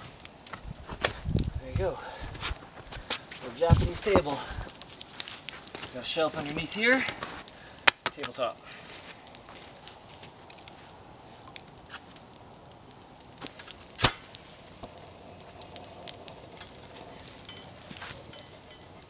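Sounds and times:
campfire crackling: 0.0 - 19.0
loud sharp pop: 14.0 - 14.3.

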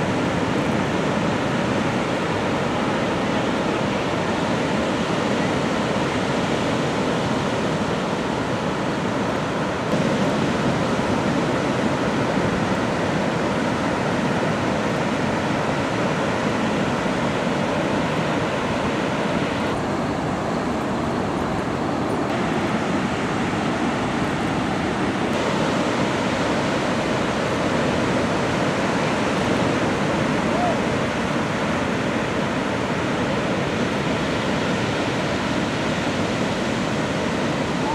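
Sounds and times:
ocean waves breaking: 0.0 - 37.9.

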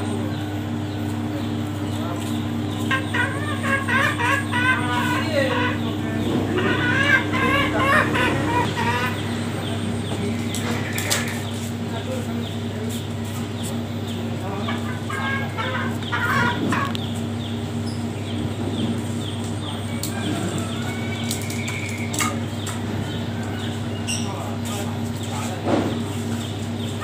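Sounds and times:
steady low hum: 0.0 - 27.0
junglefowl clucking: 2.3 - 9.5, 14.4 - 17.2.

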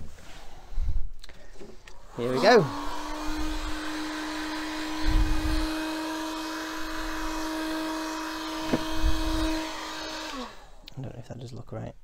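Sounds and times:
heat gun running: 2.0 - 10.8
low thumps: 8.5 - 9.5.

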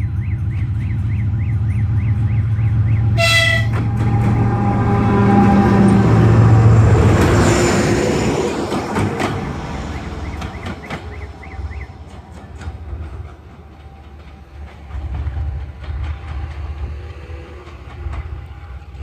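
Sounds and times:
diesel locomotive engine drone: 0.0 - 19.0
locomotive horn blast: 3.1 - 7.2
train wheel clicks: 8.4 - 19.0.

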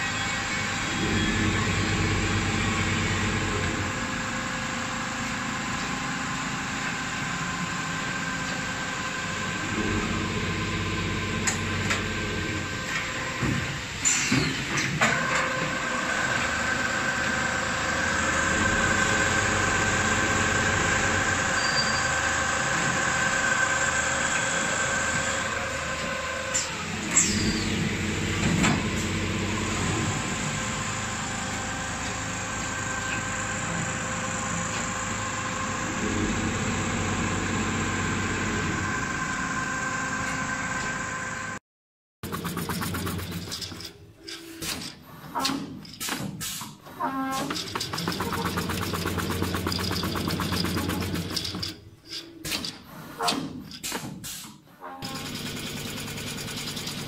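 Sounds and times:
mechanical running noise: 42.2 - 44.4, 47.5 - 52.2, 55.0 - 57.0.

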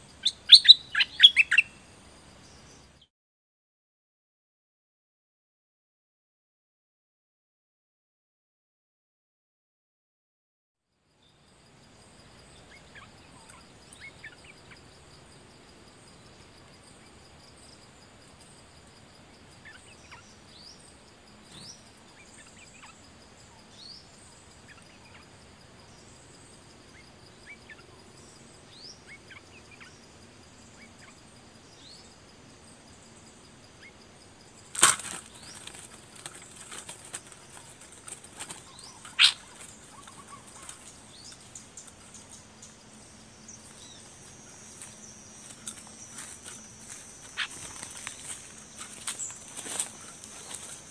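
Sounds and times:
bird chirps: 0.0 - 3.1, 12.5 - 14.9, 19.6 - 50.9
bird wings flapping against cage: 34.7 - 39.8.

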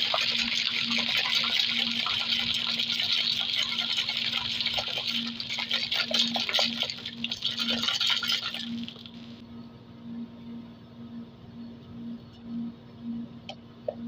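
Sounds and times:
cocktail shaker rattling: 0.0 - 9.2.

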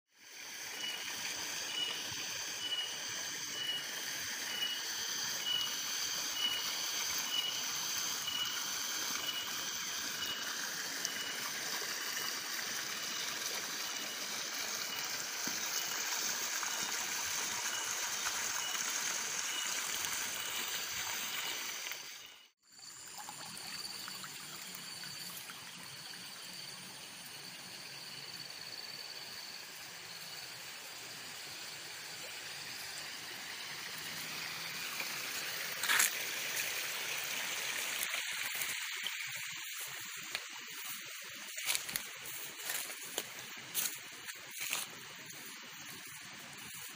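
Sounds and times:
water trickling in a channel: 5.3 - 22.0, 22.6 - 27.4, 32.2 - 46.9.

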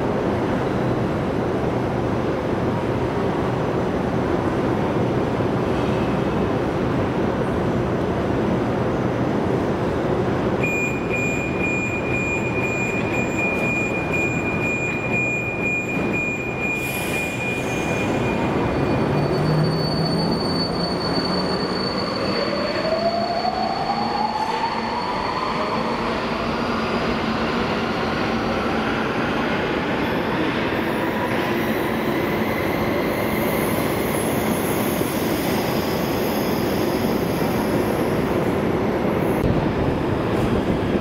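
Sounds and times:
train doors shutting: 10.6 - 22.9.

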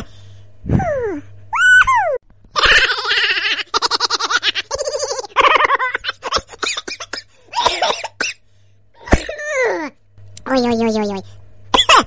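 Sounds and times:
high-pitched voice laughing: 0.7 - 7.1.

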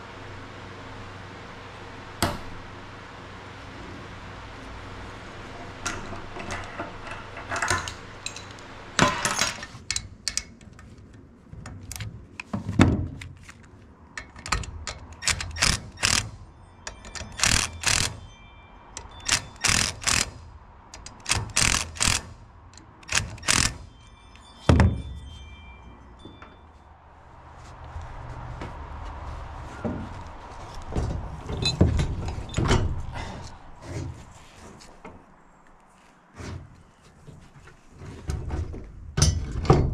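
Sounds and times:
metal tools clicking and clanking: 5.8 - 11.1, 14.1 - 26.8, 31.5 - 33.0.

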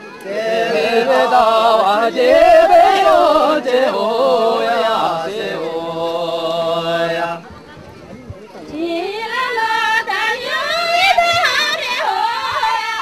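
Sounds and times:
person singing chant-like melody: 0.2 - 7.4.

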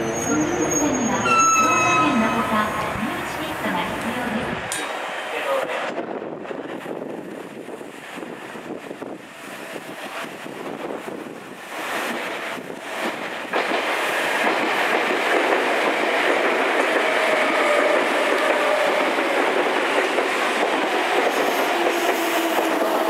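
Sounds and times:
train wheels clacking on rail joints: 12.0 - 23.0.

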